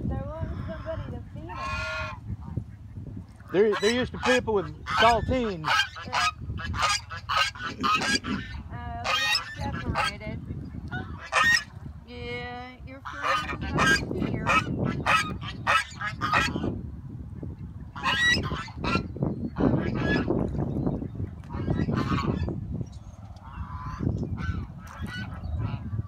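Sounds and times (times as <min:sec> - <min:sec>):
geese honking: 0:00.4 - 0:02.9, 0:03.5 - 0:11.7, 0:13.0 - 0:16.8, 0:17.9 - 0:20.4, 0:21.5 - 0:22.6, 0:23.4 - 0:26.0.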